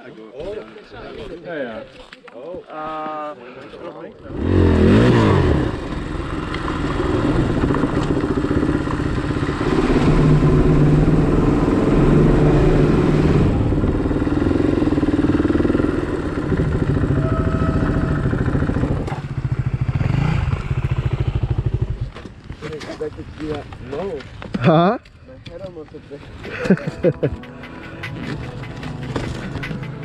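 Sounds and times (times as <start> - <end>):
motorcycle engines revving: 4.2 - 22.3, 27.4 - 30.0.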